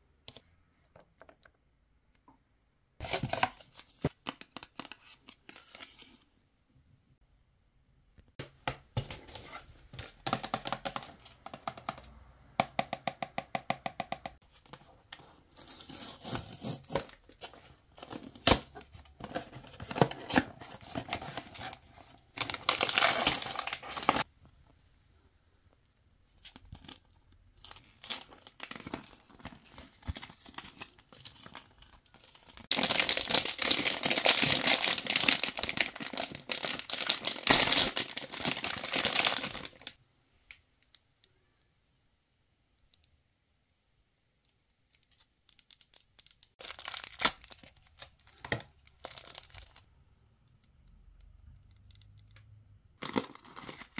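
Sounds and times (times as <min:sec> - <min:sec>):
packaging clicks and taps: 0:08.4 - 0:14.8
tissue paper crinkling: 0:20.6 - 0:24.2, 0:27.6 - 0:39.9.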